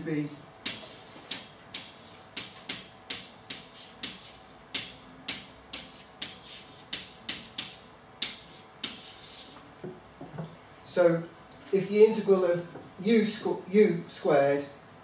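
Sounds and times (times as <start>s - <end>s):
chalk writing on blackboard: 0.6s - 9.6s.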